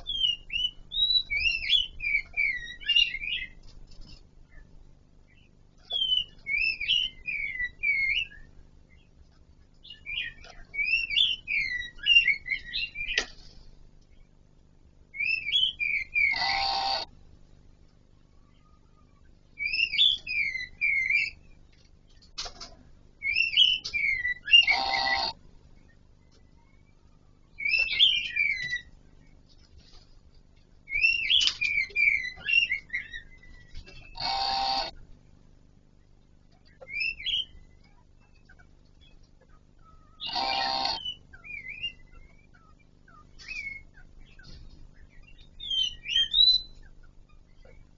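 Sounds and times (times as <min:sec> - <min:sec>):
harsh buzzing bird note: 0:16.2 - 0:17.1, 0:24.5 - 0:25.4, 0:34.1 - 0:35.0, 0:40.2 - 0:41.2
bird singing sliding notes: 0:23.3 - 0:25.4.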